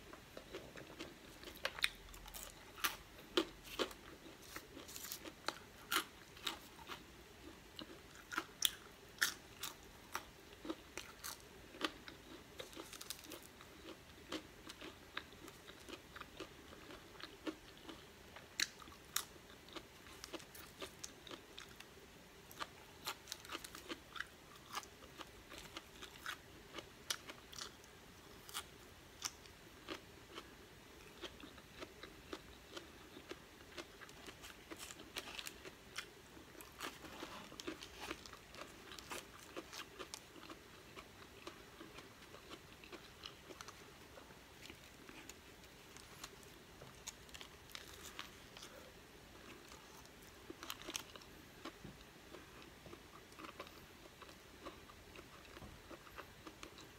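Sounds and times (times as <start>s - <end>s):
crunching french fries: 0.4s - 21.9s, 22.5s - 48.8s, 49.4s - 56.9s.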